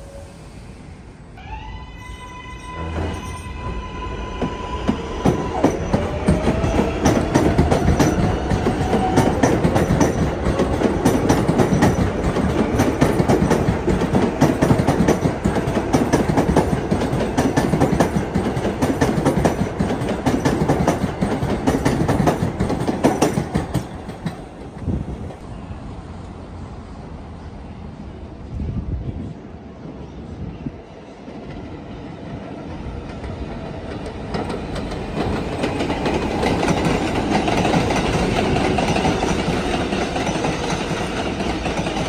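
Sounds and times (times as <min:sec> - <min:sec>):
train motor whine: 0:01.4 - 0:09.8
train wheels clattering on rails: 0:04.4 - 0:25.4, 0:32.3 - 0:42.0.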